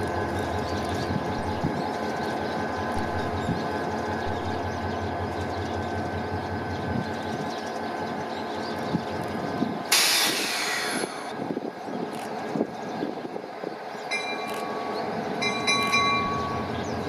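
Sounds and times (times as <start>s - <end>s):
diesel locomotive engine hum: 0.0s - 17.0s
compressed air hiss: 9.9s - 11.3s.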